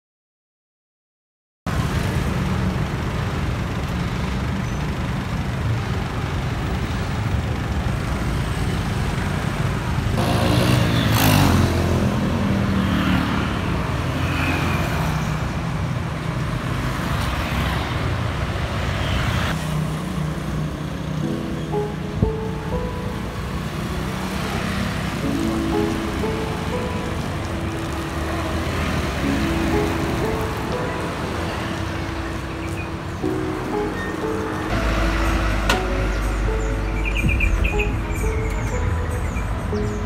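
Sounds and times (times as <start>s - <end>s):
motorcycle traffic passing: 1.7s - 40.0s
motorbike passing close: 8.2s - 15.5s, 19.2s - 40.0s.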